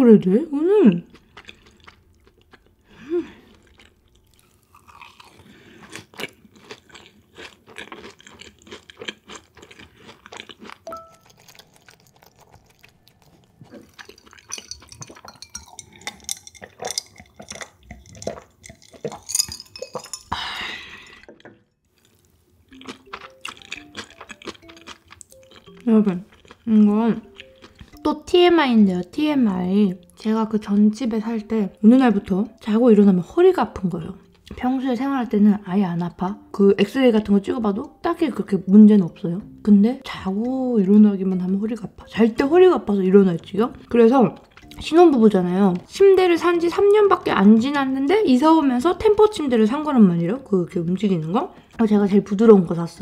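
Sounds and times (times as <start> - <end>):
crisp chewing crunches: 3.4 - 20.1, 21.9 - 28.0, 44.4 - 45.9
wet mouth clicks: 10.8 - 20.4.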